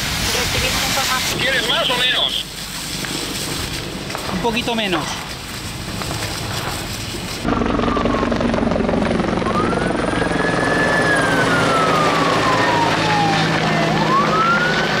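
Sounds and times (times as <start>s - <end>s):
helicopter running: 1.2s - 15.0s
siren wailing: 7.5s - 15.0s.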